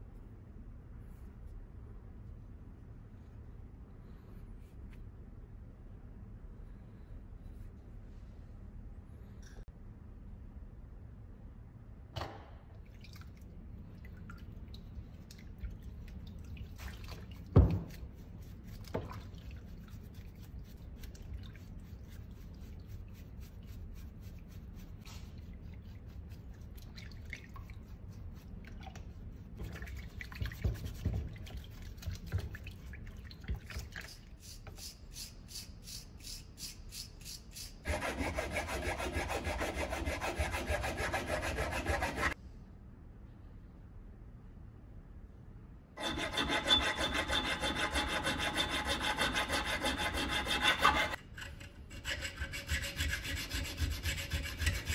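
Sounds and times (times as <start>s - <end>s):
brush scrubbing in water: 13.0s - 42.4s, 46.0s - 54.9s
rasping strokes: 34.4s - 42.4s, 46.0s - 54.9s.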